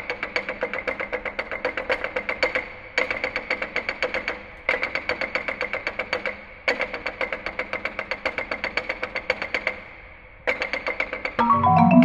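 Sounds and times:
marimba rapid repeated strokes: 11.4 - 12.0.

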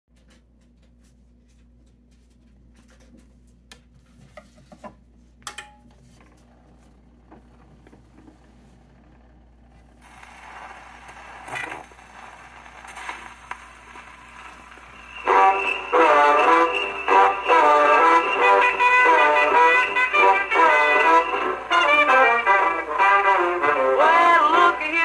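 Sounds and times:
needle surface hiss: 10.0 - 23.0.

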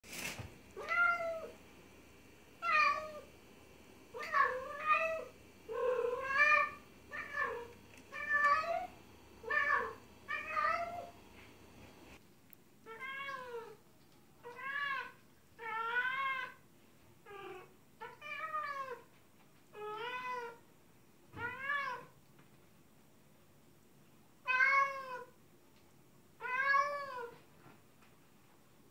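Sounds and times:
cat meowing: 4.2 - 11.1, 24.4 - 25.3, 26.4 - 27.4.

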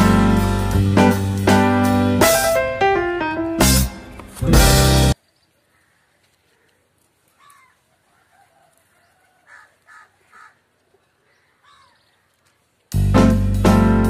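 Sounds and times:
faint bird calls: 5.2 - 12.8.

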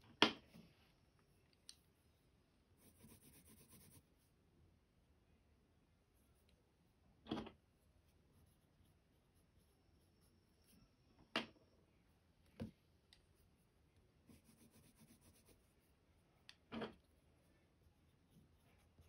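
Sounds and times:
pencil scratching on paper: 2.8 - 4.1, 7.8 - 10.8, 13.3 - 19.0.

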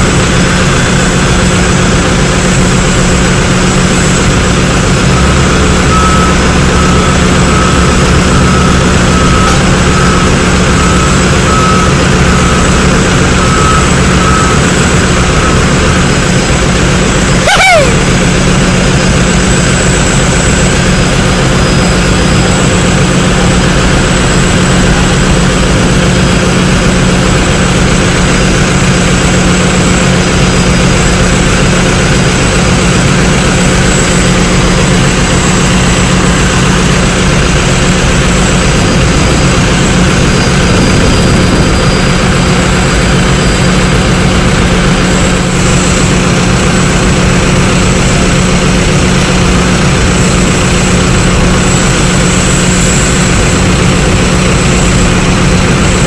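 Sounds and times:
ground machinery drone: 0.0 - 56.0
clunk with falling squeal: 5.1 - 16.1, 39.3 - 46.0
high warning beeper: 5.2 - 16.1, 17.4 - 18.1.

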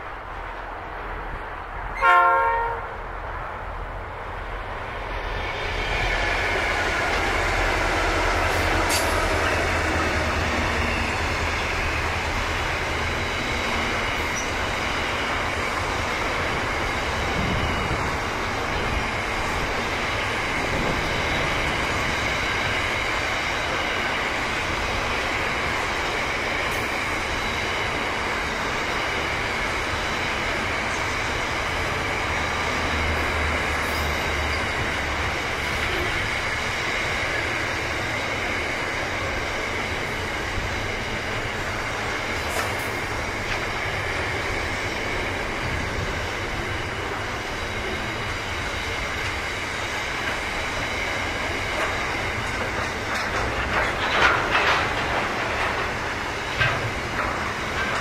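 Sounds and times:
diesel locomotives passing: 0.0 - 58.0
locomotive horn blast: 2.0 - 3.0
freight wagons rolling rumble: 50.2 - 58.0.

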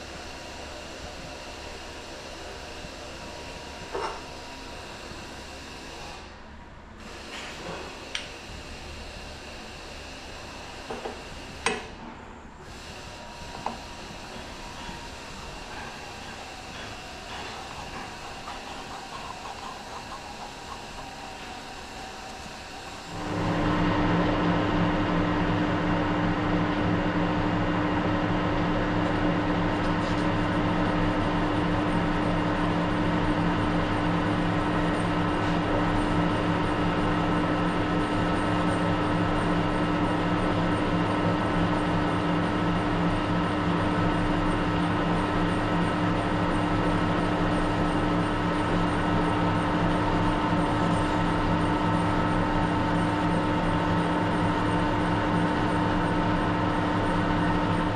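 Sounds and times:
metal lathe humming: 12.6 - 24.2.

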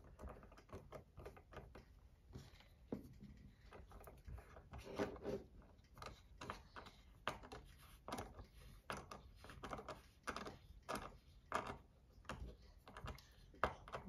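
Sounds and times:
small metal clicks and scrapes: 3.3 - 14.0.

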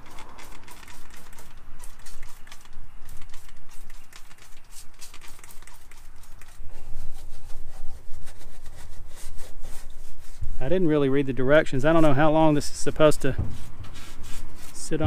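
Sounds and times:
trigger spray bottle squirting: 0.0 - 6.7
hand brush scrubbing: 0.0 - 11.0, 11.8 - 15.0.

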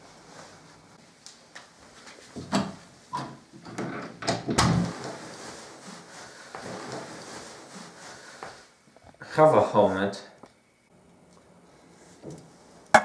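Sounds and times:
rustling: 4.8 - 8.7.

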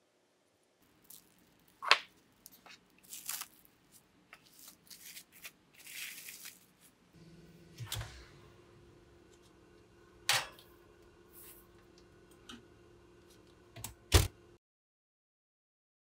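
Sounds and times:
low steady hum: 6.8 - 14.6.

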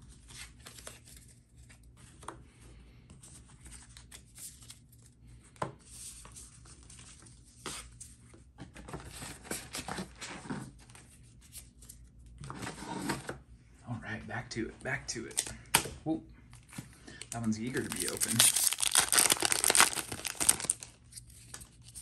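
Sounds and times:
paper cards rustling: 16.6 - 22.0.

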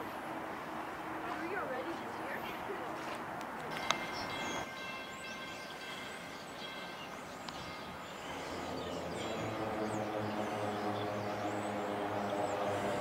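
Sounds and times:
low engine drone: 5.7 - 13.0.

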